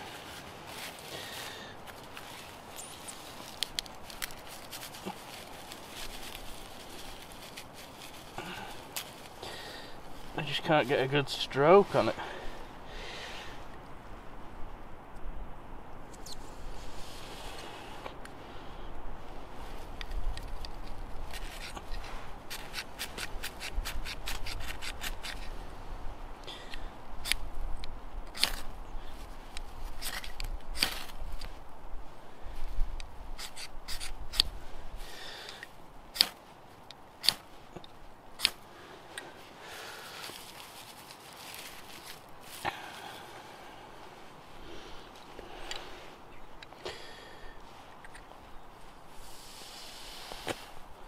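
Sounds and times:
birch bark crackling: 0.0 - 13.8, 16.1 - 51.0
steady background hiss: 0.0 - 51.0
striker scraping fire steel: 20.0 - 25.6, 33.4 - 34.5, 37.2 - 37.8.

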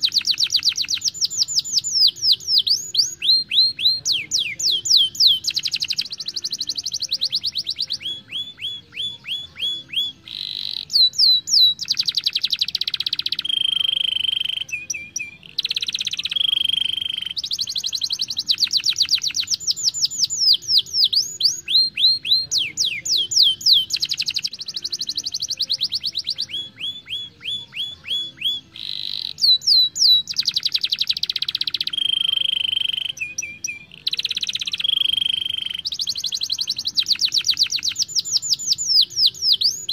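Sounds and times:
canary singing: 0.0 - 39.9.

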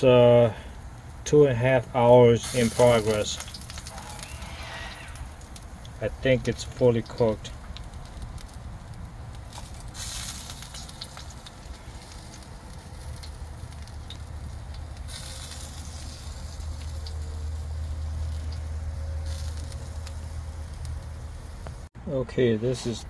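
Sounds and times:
steady hiss: 0.0 - 8.4
fire crackling and popping: 0.3 - 21.9
low rumble: 3.4 - 10.0.

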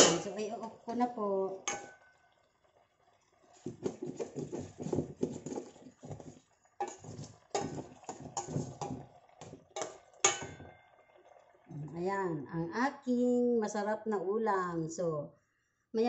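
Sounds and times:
metal spoon scraping a pan: 1.6 - 2.0, 3.8 - 9.0, 9.8 - 10.7.

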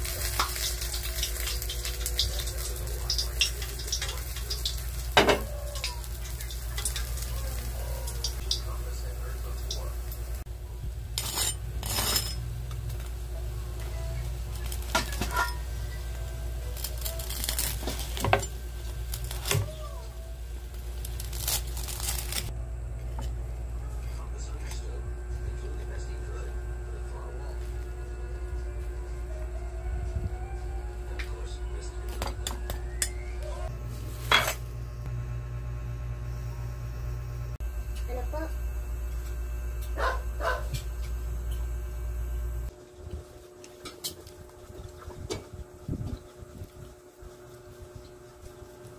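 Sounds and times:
steady low hum: 0.0 - 48.9
cleaver crunching crispy skin: 16.7 - 18.2, 21.0 - 22.5
dog barking: 40.0 - 40.7.

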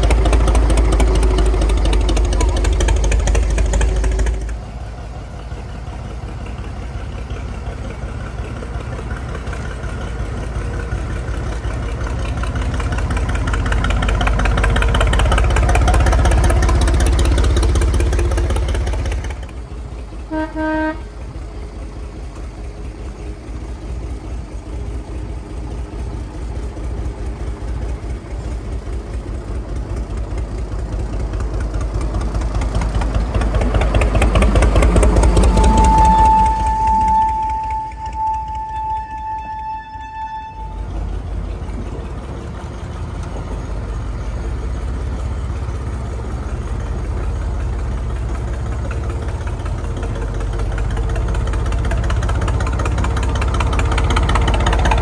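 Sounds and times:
diesel locomotive engine running: 0.0 - 55.0
locomotive horn toot: 20.3 - 21.2, 35.1 - 41.2.

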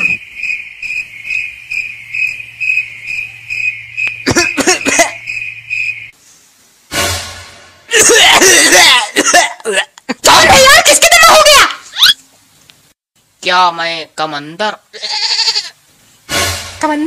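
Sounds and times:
crickets chirping: 0.0 - 6.9.

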